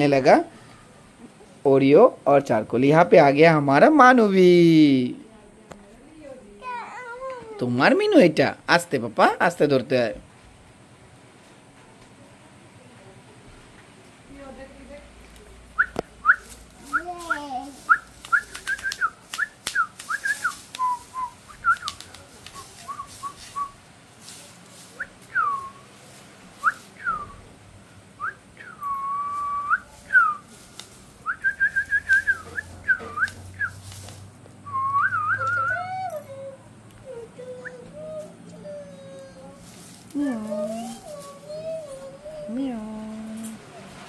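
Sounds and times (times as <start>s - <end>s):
high whistled chirps: 15.8s - 22.0s, 22.6s - 23.8s, 25.0s - 25.8s, 26.6s - 27.4s, 28.2s - 30.5s, 31.2s - 33.8s, 34.6s - 36.5s
foil tinsel rustling: 16.2s - 27.4s, 29.0s - 34.4s, 35.3s - 44.0s.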